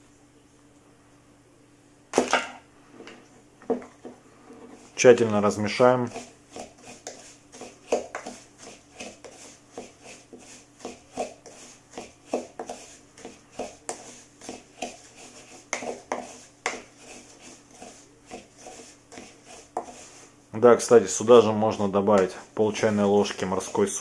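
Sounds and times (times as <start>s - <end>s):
spoon scraping plastic cup: 5.7s - 20.3s.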